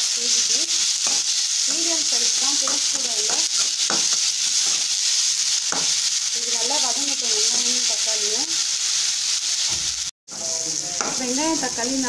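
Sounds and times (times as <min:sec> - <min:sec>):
vegetables sizzling in hot oil: 0:00.0 - 0:12.0
metal spoon scraping a pan: 0:00.4 - 0:06.1.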